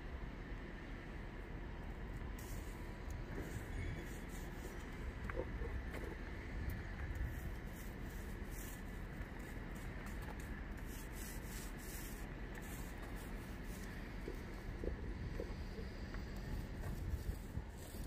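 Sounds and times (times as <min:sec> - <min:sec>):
steady low rumble: 0:00.0 - 0:18.0
paint roller rubbing swish: 0:03.4 - 0:04.9, 0:07.2 - 0:15.0, 0:16.6 - 0:18.0.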